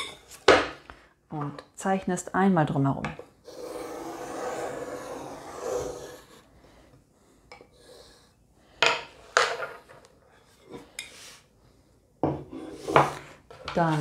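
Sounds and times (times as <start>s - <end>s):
pencil scratching on paper: 3.4s - 6.5s.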